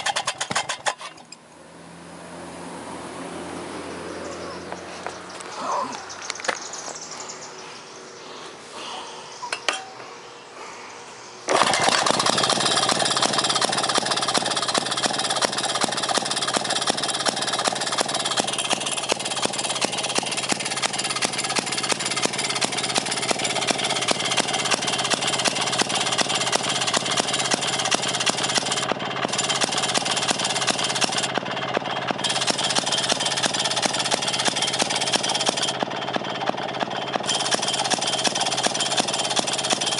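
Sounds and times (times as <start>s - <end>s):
small engine knocking: 0.0s - 1.2s, 11.5s - 39.9s
small engine running: 0.0s - 1.4s, 11.5s - 39.9s.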